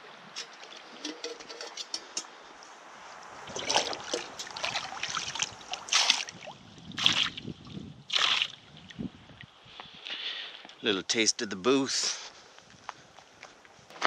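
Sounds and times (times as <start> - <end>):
water splashing as pot scoops: 0.3 - 2.2, 3.4 - 7.4, 8.1 - 8.6.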